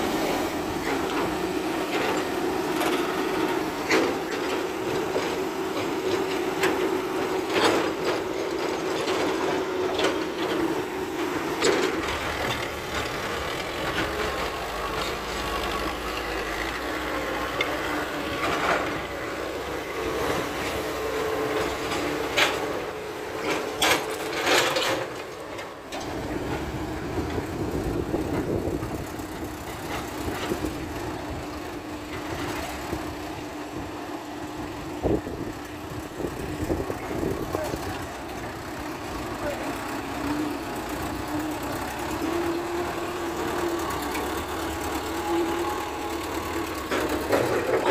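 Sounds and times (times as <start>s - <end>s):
diesel engines running: 0.0s - 47.9s.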